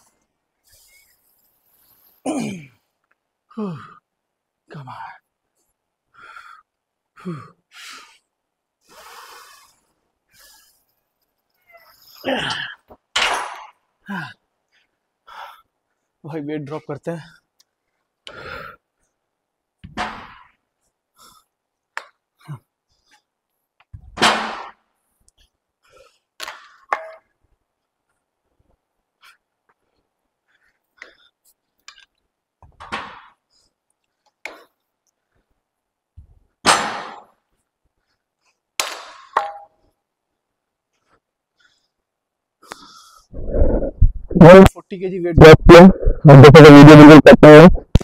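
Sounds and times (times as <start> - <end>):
man grunting: 2.3 - 2.8, 3.6 - 4.0, 12.2 - 12.9
man breathing hard: 6.1 - 10.8, 14.0 - 15.8, 18.2 - 18.9, 42.6 - 44.0.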